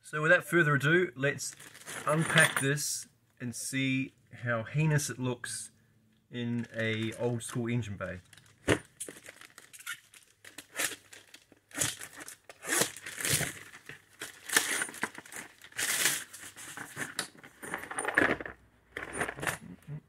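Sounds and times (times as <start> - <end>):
plastic crinkling and tearing: 1.5 - 2.2, 8.1 - 17.4.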